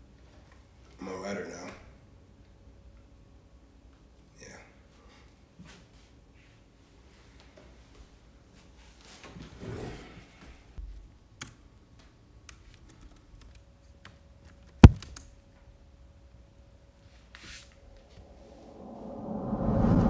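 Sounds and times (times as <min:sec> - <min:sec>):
keyboard keys clicking: 0:12.5 - 0:15.3
low rumbling: 0:18.0 - 0:20.0.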